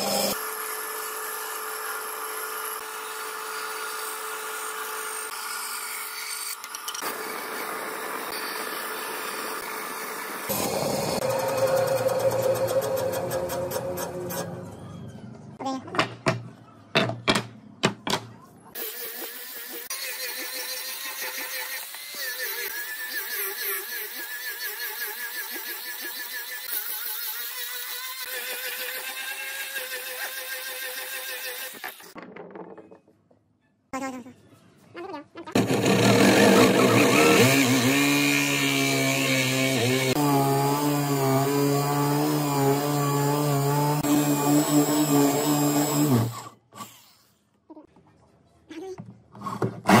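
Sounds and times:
angle grinder sanding wood: 0.0s - 0.4s, 35.6s - 46.4s
electric drill boring into wood: 0.0s - 5.8s, 7.0s - 14.3s, 35.6s - 46.6s.

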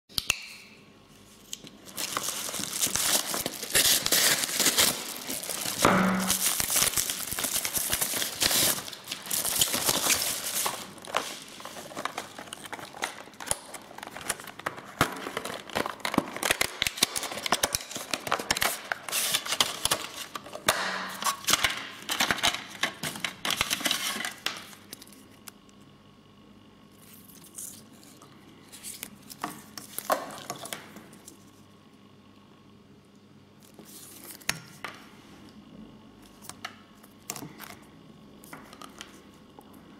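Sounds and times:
packaging crinkling and rustling: 1.4s - 25.7s, 27.0s - 31.6s.

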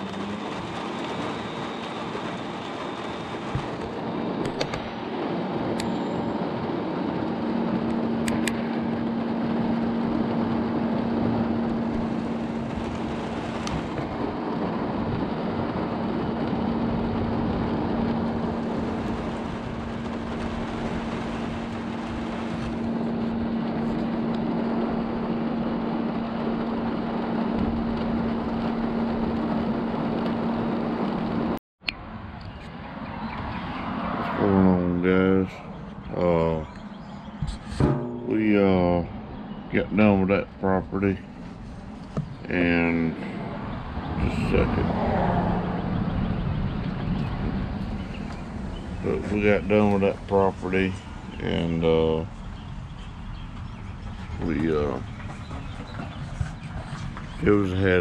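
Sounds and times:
steady rain: 0.0s - 4.2s, 10.0s - 22.9s
vehicle engine drone: 0.0s - 58.0s.

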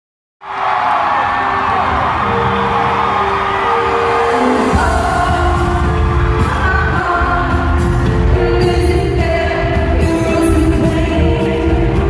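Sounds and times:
live pop band: 3.7s - 12.0s
drums and bass: 4.8s - 12.0s.

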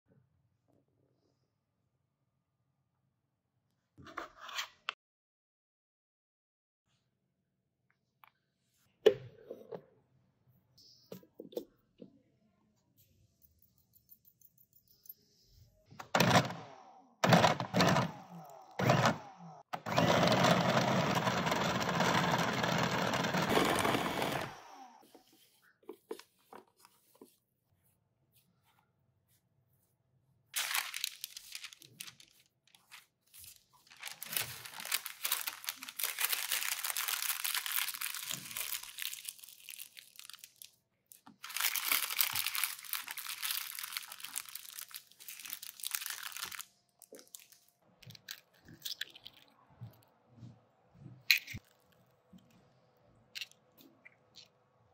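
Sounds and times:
food processor running: 18.8s - 25.0s
parchment paper crinkling: 30.6s - 49.5s.

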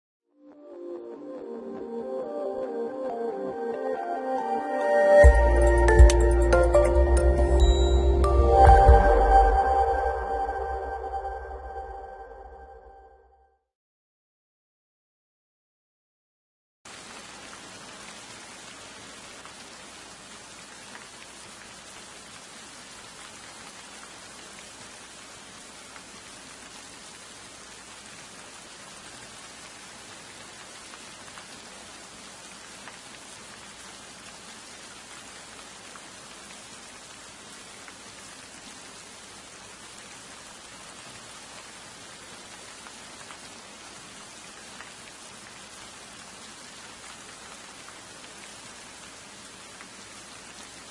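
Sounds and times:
steady rain hiss: 5.2s - 11.7s, 16.9s - 50.9s.

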